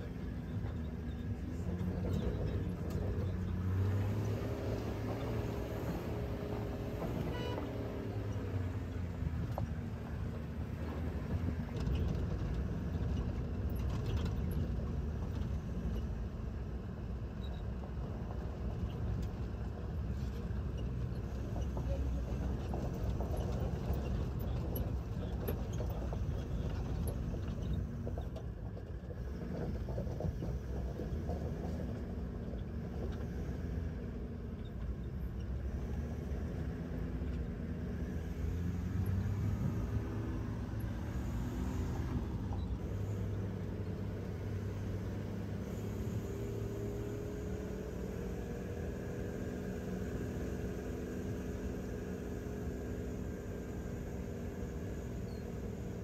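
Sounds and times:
car engine and road noise: 0.0s - 56.0s.

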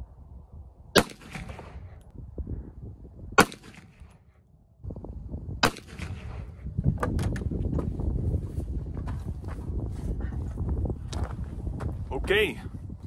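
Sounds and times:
pistol shots with echo: 1.0s - 1.8s, 3.4s - 4.0s, 5.6s - 6.4s.

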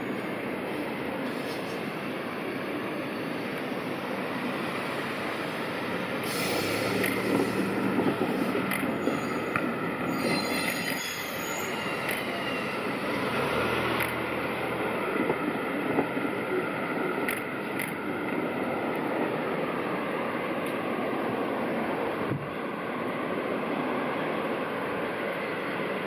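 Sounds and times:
train wheels rumbling on rails: 4.4s - 23.5s
high wheel squeal: 6.2s - 13.4s.

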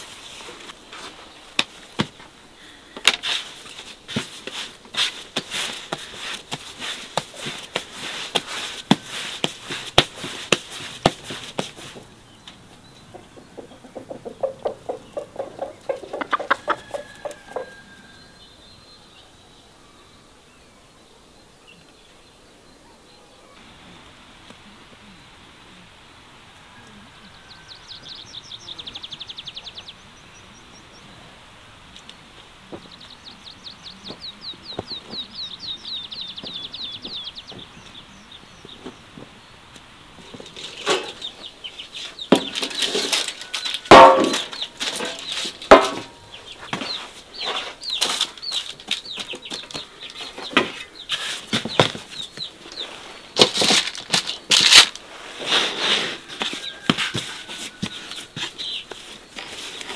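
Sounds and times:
hands slapping bread dough: 4.1s - 12.1s
songbird trilling: 12.3s - 18.9s.

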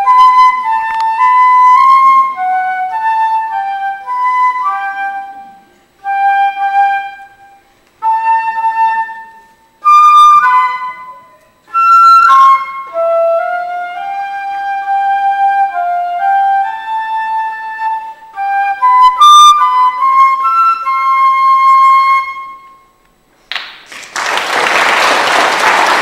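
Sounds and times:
solo flute melody: 0.0s - 23.0s
audience applauding: 23.4s - 26.0s.

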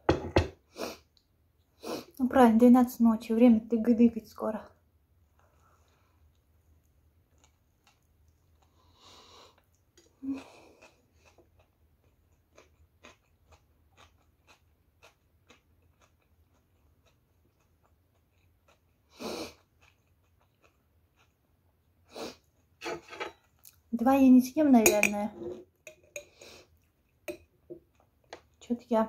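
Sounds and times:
chewing sandwich: 5.3s - 22.8s
breaths: 8.7s - 9.6s.

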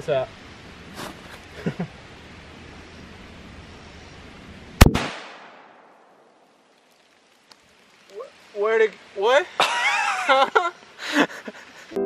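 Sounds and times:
rifle shot with echo: 4.8s - 6.2s.

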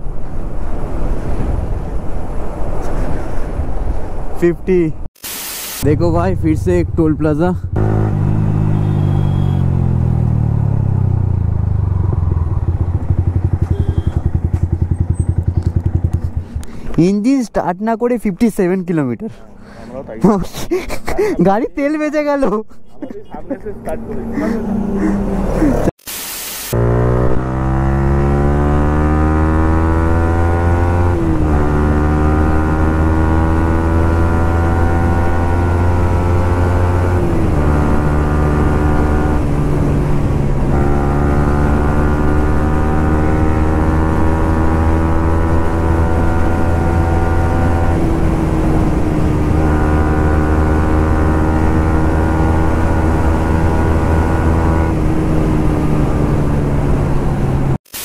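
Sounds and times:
motorcycle engine running: 5.9s - 16.8s.

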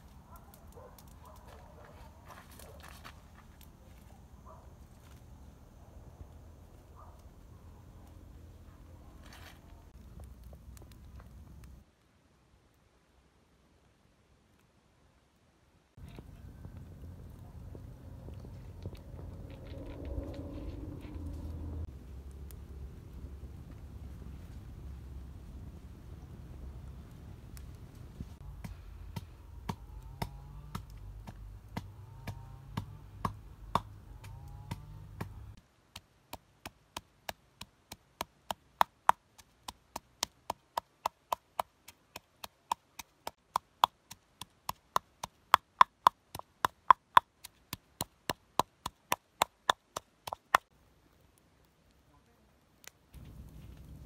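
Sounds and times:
low outdoor rumble: 0.0s - 11.9s, 16.0s - 35.6s, 50.7s - 54.0s.

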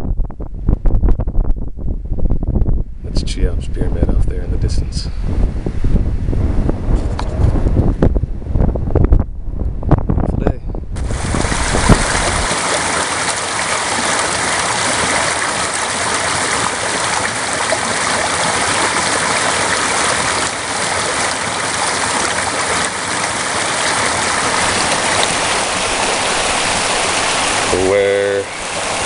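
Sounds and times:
creek water rushing over stones: 11.0s - 29.0s.

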